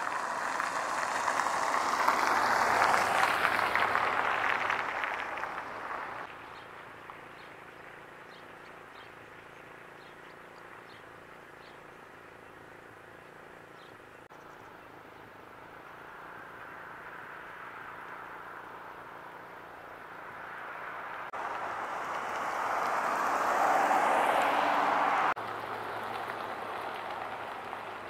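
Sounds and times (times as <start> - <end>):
passing vehicle road noise: 0.0 - 8.1, 15.1 - 28.0.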